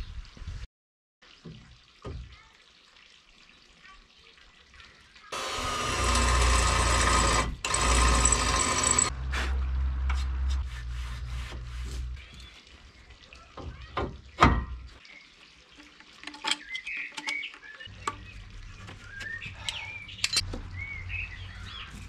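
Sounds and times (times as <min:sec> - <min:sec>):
cordless drill running: 0:05.4 - 0:09.1.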